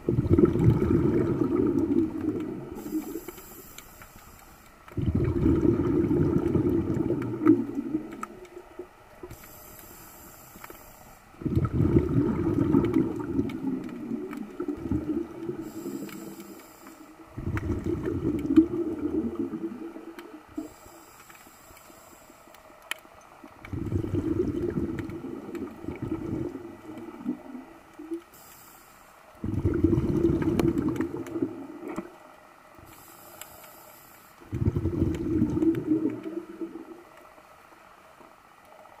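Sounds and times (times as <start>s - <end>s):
exhaled bubbles rumbling: 0.0s - 3.3s, 4.9s - 9.4s, 11.3s - 16.6s, 17.2s - 20.7s, 23.3s - 28.3s, 29.3s - 32.4s, 34.4s - 37.5s
regulator inhalation hiss: 2.7s - 4.9s, 9.2s - 11.3s, 15.5s - 17.3s, 20.6s - 22.8s, 28.3s - 29.3s, 32.9s - 34.4s.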